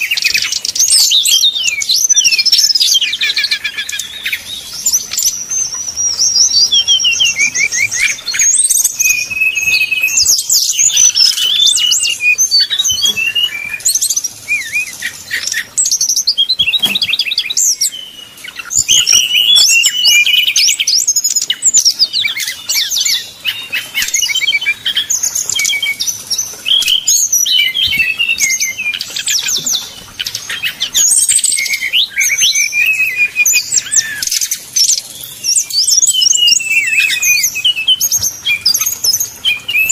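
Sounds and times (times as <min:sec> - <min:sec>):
bird singing high chirps and trills: 0:00.0 - 0:39.9.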